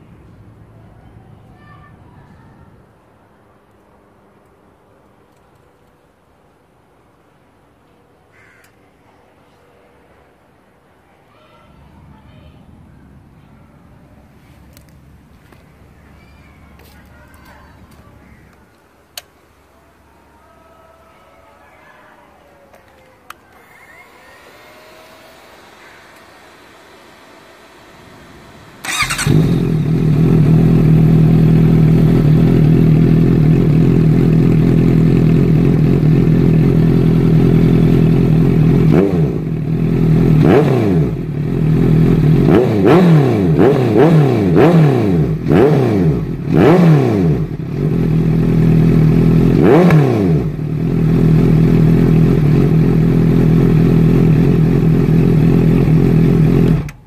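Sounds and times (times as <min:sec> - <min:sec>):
motorcycle engine idling and revving: 0:22.8 - 0:57.0.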